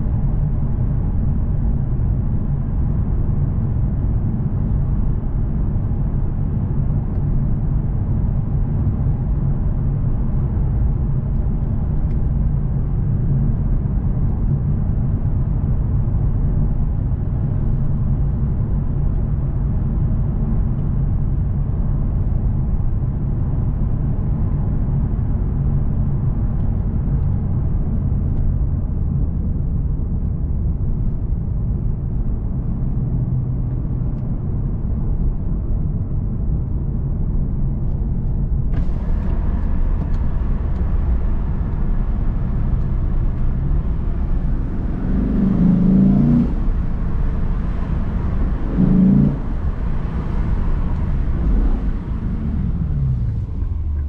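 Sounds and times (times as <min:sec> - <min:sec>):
car engine drone: 0:00.0 - 0:54.0
tyre and road noise: 0:00.0 - 0:54.0.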